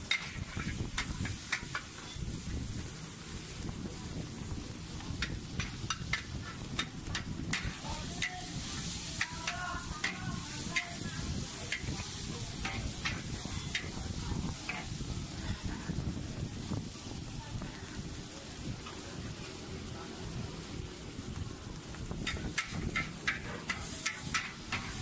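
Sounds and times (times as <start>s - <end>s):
metal spatula scraping a wok: 0.0s - 2.5s, 5.2s - 15.8s, 22.2s - 25.0s
food sizzling: 0.0s - 25.0s.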